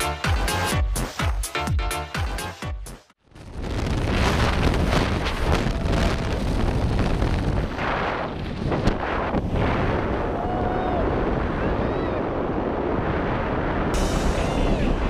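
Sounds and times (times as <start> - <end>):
electronic dance music: 0.0 - 3.1
wind buffeting a microphone: 3.3 - 15.0.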